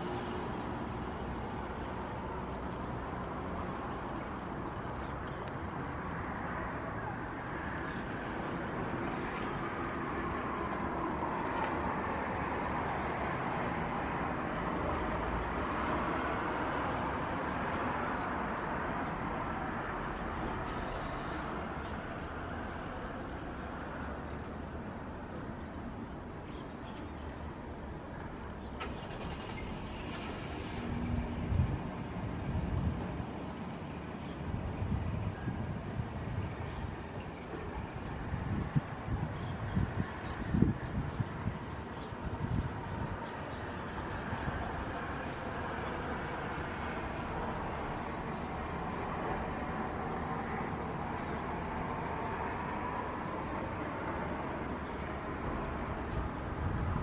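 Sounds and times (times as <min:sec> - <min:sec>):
faint high chirp: 0:29.4 - 0:31.2.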